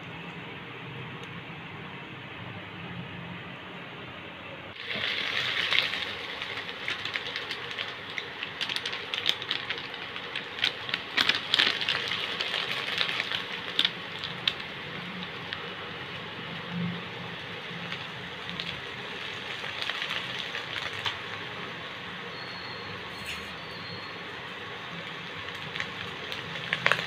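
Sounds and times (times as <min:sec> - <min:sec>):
food sizzling in a hot pan: 0:04.8 - 0:08.6.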